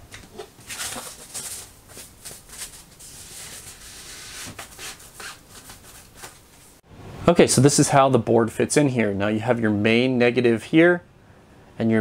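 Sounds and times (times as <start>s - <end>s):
thin sheet rustling: 0.4s - 6.8s.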